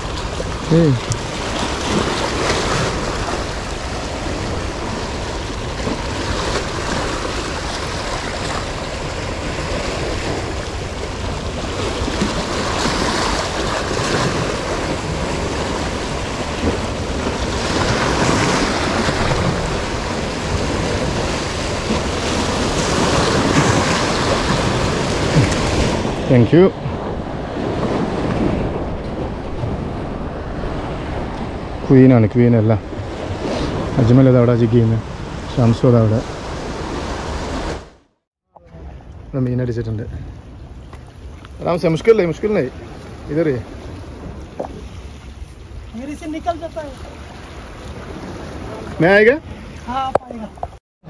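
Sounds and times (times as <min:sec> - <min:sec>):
wind buffeting microphone: 0:00.0 - 0:37.9
waves washing over rocks: 0:00.0 - 0:38.0.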